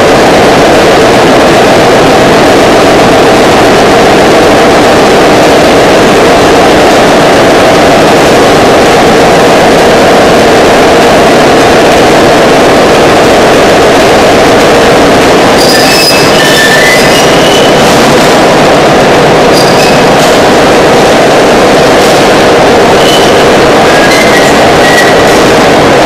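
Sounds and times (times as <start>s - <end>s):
high metallic squeals: 15.6s - 18.0s, 19.5s - 20.1s, 23.0s - 25.4s.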